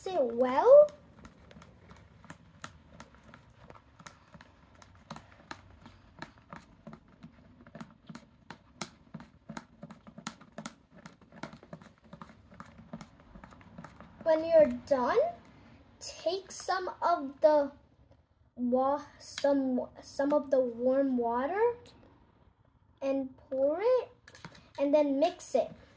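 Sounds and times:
stick tapping plastic tub: 0.1s - 14.8s.

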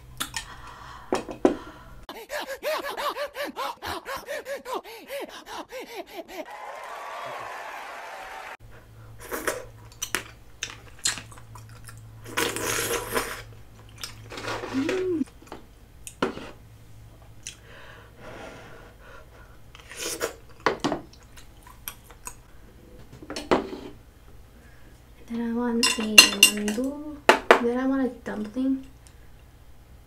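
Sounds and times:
wet chewing and slurping: 9.3s - 15.2s.

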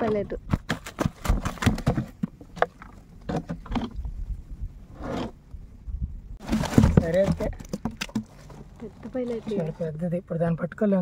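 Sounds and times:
gear knocking and scraping on raft: 0.0s - 4.1s, 6.4s - 10.0s.

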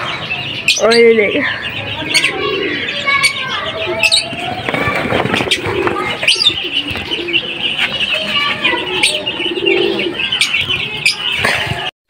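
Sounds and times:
pigeons cooing: 0.0s - 11.9s
small birds twittering: 0.0s - 11.9s.

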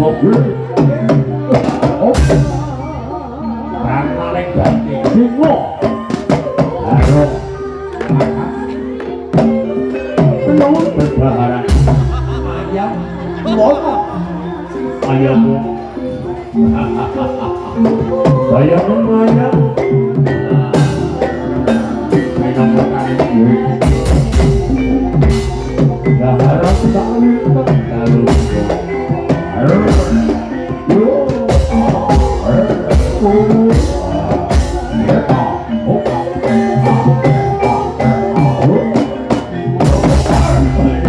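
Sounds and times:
drum strokes: 0.0s - 3.2s, 4.5s - 8.4s, 9.3s - 13.5s, 14.2s - 41.0s
ringing pitched percussion: 0.0s - 41.0s
low bass beat: 39.8s - 41.0s.

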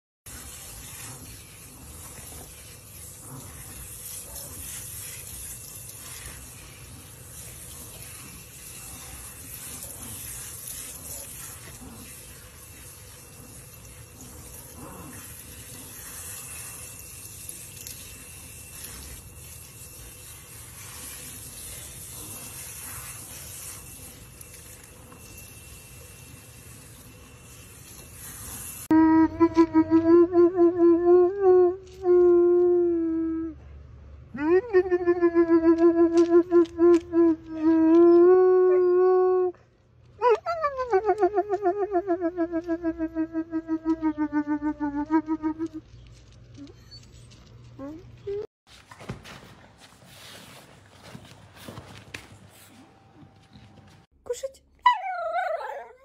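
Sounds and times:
faucet sprayer water splashing: 0.3s - 28.9s.

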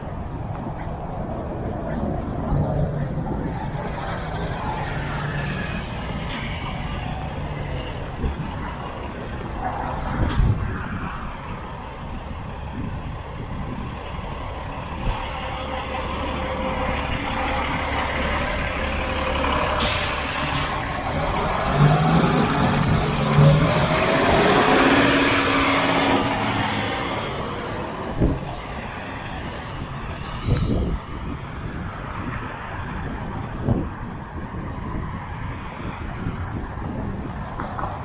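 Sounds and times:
traffic noise: 0.0s - 38.0s
heavy vehicle engine pulling away: 13.6s - 31.2s
air brake hiss: 15.0s - 16.4s, 19.8s - 20.9s.

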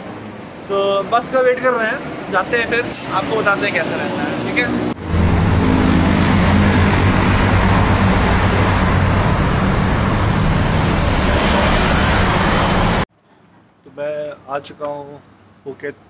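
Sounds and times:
passing cars rushing: 0.0s - 13.1s.

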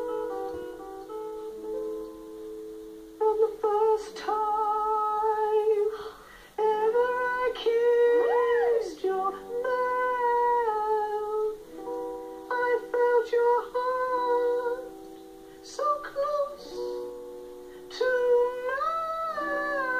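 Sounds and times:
man singing held notes: 3.2s - 11.6s, 12.5s - 14.9s, 15.6s - 17.2s, 17.8s - 19.9s.

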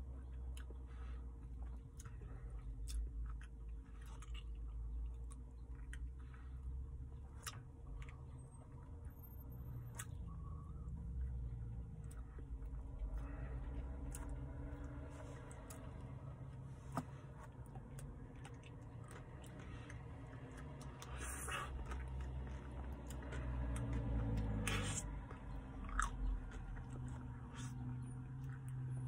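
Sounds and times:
biting and chewing crunchy coating: 0.0s - 9.1s, 11.6s - 28.9s
person licking ice cream: 24.4s - 25.1s.

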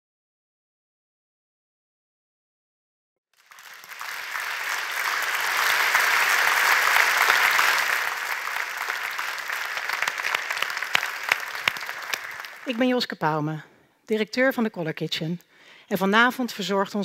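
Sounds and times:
audience applauding: 3.4s - 12.9s.

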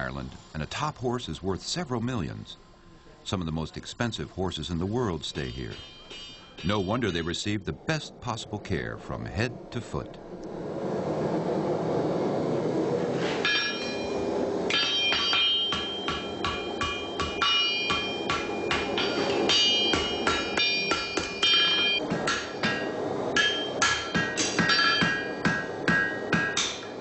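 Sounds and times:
steady noise: 0.0s - 27.0s
hammer striking metal on anvil: 5.4s - 7.3s, 13.4s - 27.0s.

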